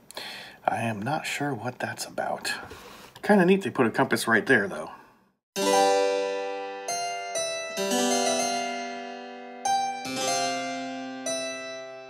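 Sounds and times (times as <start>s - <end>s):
plucked keyboard chords: 5.6s - 12.0s.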